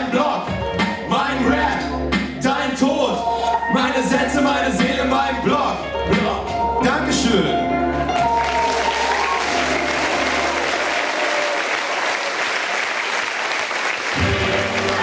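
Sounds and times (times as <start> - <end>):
low music: 0.0 - 11.6, 14.1 - 15.0
audience applauding: 8.1 - 15.0.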